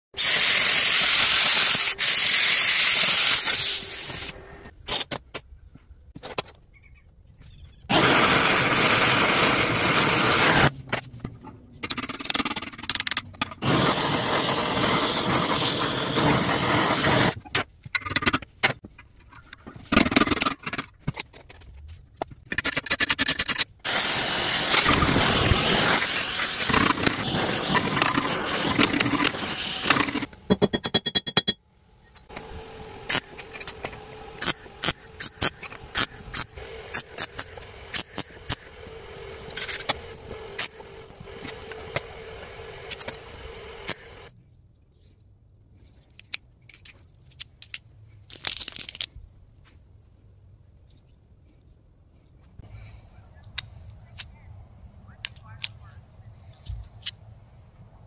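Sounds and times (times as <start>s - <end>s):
torch flame hissing: 0.2s - 4.4s, 7.9s - 10.7s, 13.6s - 17.4s, 23.8s - 29.9s.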